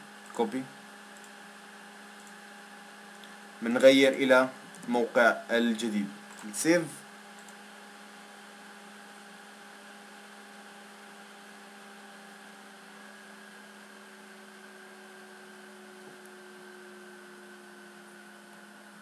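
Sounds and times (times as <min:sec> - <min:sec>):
faint electrical hum: 0:00.0 - 0:19.0.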